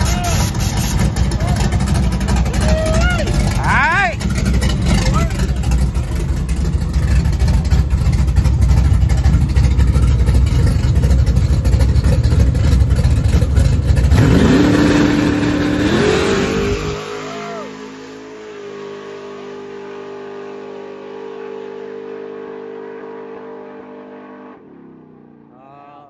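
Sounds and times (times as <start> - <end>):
deep engine rumble: 0.0 - 23.4.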